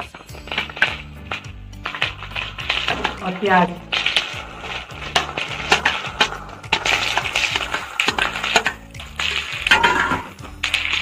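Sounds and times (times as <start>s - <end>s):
onions hissing in hot oil: 0.0s - 11.0s
onions scraped off steel plate: 0.0s - 11.0s.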